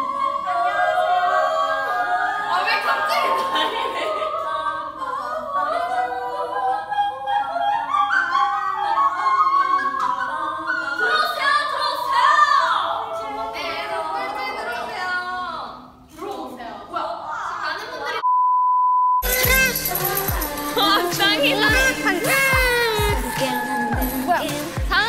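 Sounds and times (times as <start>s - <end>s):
person singing operatically: 19.2s - 25.0s.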